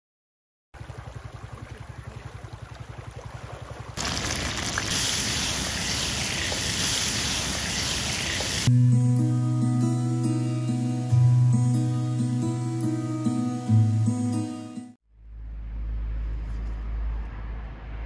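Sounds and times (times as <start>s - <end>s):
oil sizzling in frying pan: 4.0s - 8.7s.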